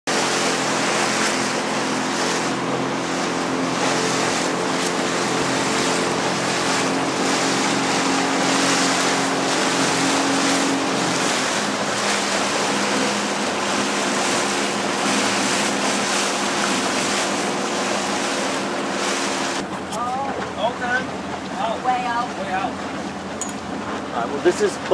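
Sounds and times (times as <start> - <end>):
water rushing: 0.0 - 24.9
wind: 0.0 - 24.9
small boat motor running: 0.1 - 24.9.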